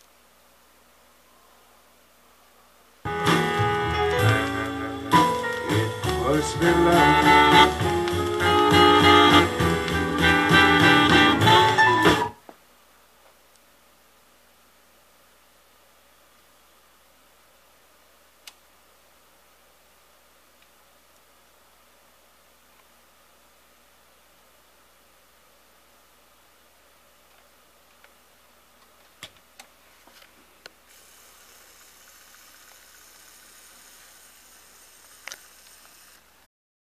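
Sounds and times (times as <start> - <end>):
record surface hiss: 0.0 - 36.5
instrumental music from vinyl record: 3.1 - 12.4
faint clicks: 18.4 - 18.6, 28.8 - 36.3.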